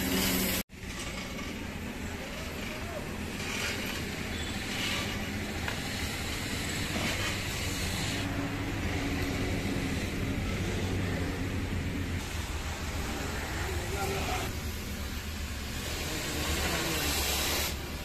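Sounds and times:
hiss: 15.6 - 18.0.

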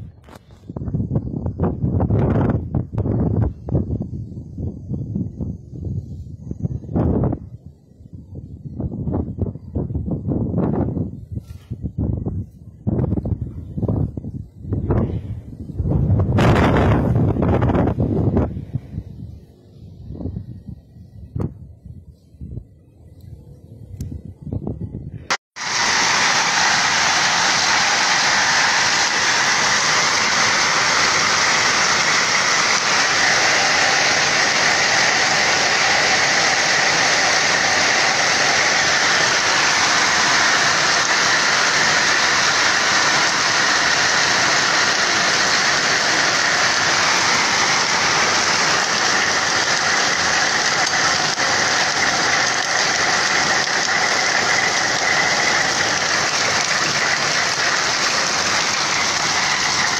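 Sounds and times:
hail and rain pelting grass: 25.6 - 59.9.

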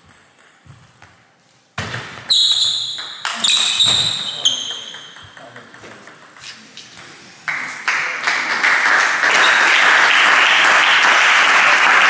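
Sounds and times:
applause: 7.5 - 12.0.

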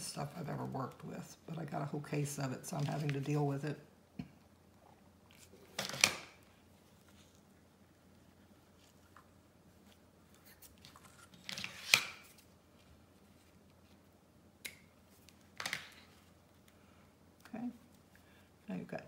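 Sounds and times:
hands handling craft materials: 2.7 - 3.5.

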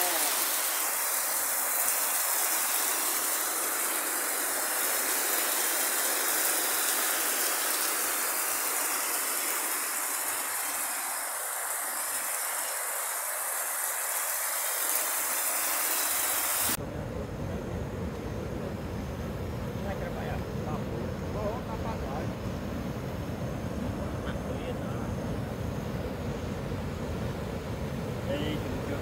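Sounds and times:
heavy rain pouring: 0.0 - 16.8.

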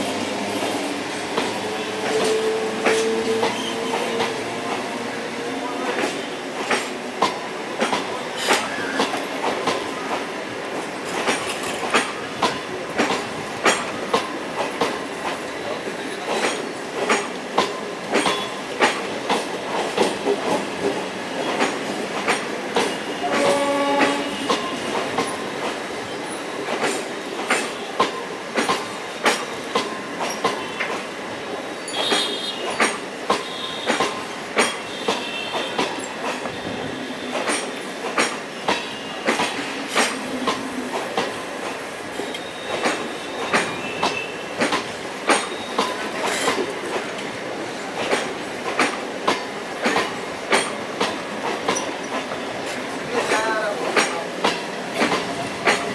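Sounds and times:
train horn: 1.8 - 4.3, 22.9 - 25.0, 31.9 - 32.7, 33.4 - 34.2, 34.8 - 37.5
wheels clicking over rail joints: 6.0 - 31.1, 31.8 - 36.6, 37.3 - 55.9.

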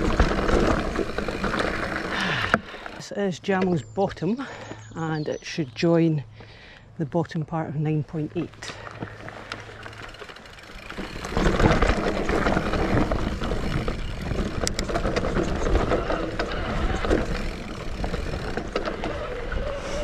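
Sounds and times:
bike rattling and knocking: 0.0 - 3.0, 8.4 - 20.0
bike tyres and rushing air: 0.0 - 3.0, 8.8 - 20.0.

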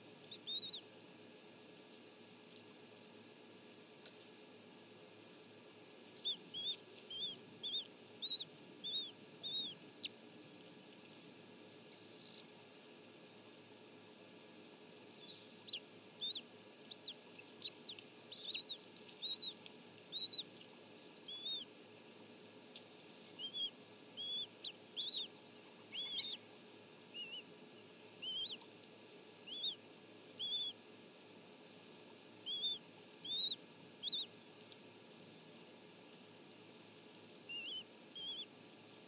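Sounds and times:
eaglet chicks peeping: 0.3 - 0.9, 6.2 - 10.2, 15.2 - 21.7, 23.3 - 26.4, 27.1 - 27.5, 28.2 - 28.7, 29.4 - 29.8, 30.4 - 30.8, 32.4 - 34.3, 37.5 - 38.5.

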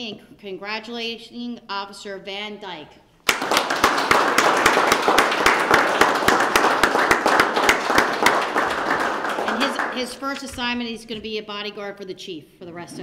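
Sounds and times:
people applauding: 3.2 - 10.6
nearby hand claps: 3.3 - 10.7.

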